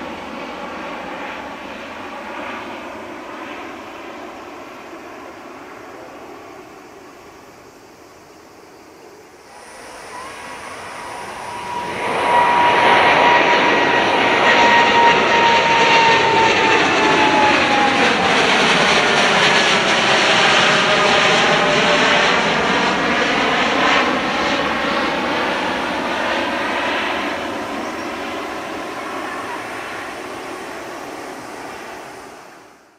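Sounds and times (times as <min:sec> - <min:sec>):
jet roar passing overhead: 0:00.0 - 0:07.6, 0:08.9 - 0:32.9
jet fan whine: 0:00.0 - 0:32.9.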